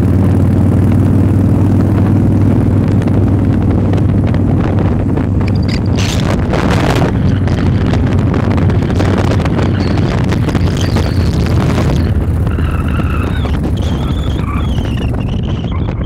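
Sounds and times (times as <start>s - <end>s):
motorcycle engine cruising: 0.0s - 16.0s
wind buffeting microphone: 0.0s - 16.0s.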